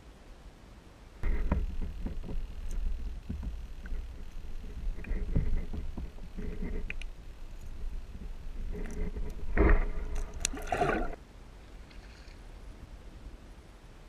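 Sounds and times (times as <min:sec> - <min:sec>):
muffled underwater rumble: 0:01.2 - 0:11.2.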